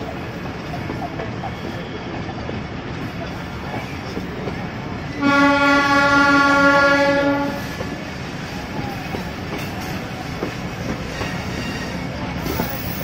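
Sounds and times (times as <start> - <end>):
train wheels rumbling on rails: 0.0 - 13.0
train horn: 5.2 - 8.0.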